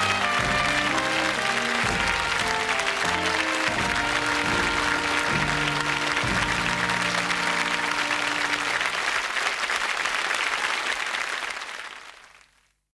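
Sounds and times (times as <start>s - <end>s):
theme music: 0.0s - 9.2s
audience applauding: 0.0s - 12.8s.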